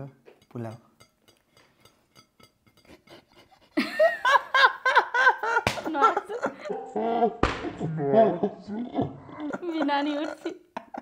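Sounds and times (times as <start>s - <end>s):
people laughing: 3.8s - 11.0s.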